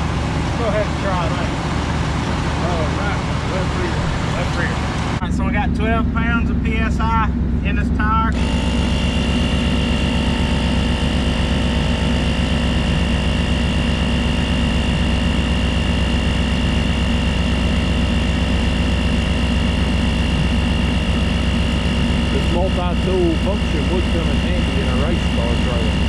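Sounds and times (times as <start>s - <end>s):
steady high whine: 0.0s - 26.0s
air compressor pumping: 8.3s - 26.0s.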